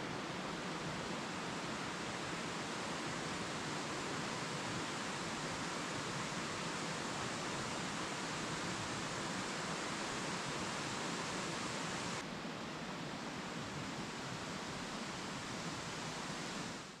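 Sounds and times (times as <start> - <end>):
rocky stream rushing: 0.0 - 12.2.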